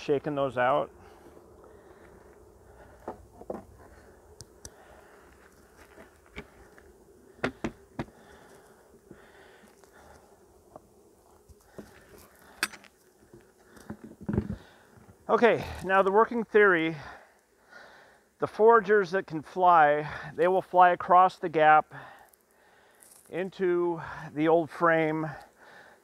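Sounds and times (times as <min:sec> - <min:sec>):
honeybees humming: 0:00.0 - 0:15.8
clicks and knocks of wooden hive parts: 0:07.4 - 0:08.2, 0:11.4 - 0:15.2.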